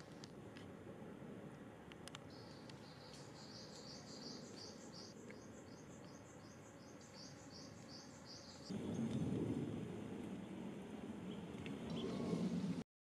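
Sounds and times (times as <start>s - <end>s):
low rumbling noise: 8.7s - 12.8s.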